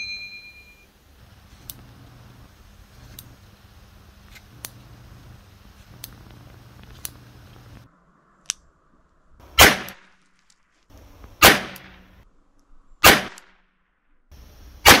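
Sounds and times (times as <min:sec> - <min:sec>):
revolver shots with echo: 0:09.6 - 0:10.0.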